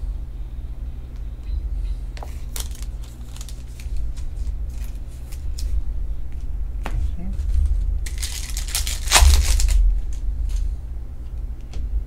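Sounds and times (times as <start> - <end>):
low hum: 0.0 - 12.0
trading cards clicking and flicking: 8.1 - 10.7.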